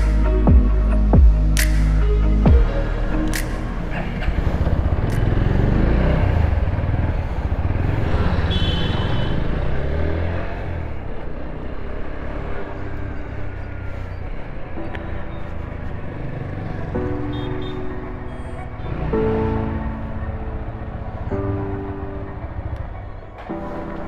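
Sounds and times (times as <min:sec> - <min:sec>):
motorcycle engine accelerating: 0:03.8 - 0:13.4.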